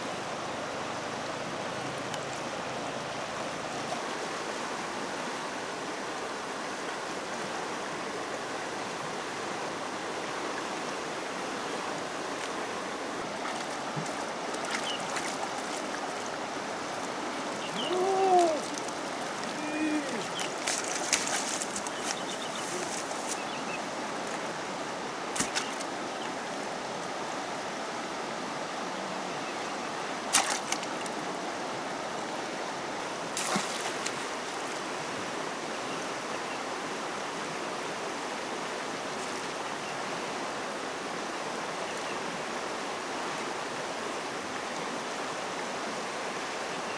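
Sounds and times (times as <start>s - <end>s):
fast-flowing river rushing: 0.0s - 46.9s
brief voice-like sound: 17.7s - 18.8s, 19.5s - 20.3s
basket splashing through water: 17.8s - 23.1s, 30.3s - 31.1s, 33.4s - 34.2s.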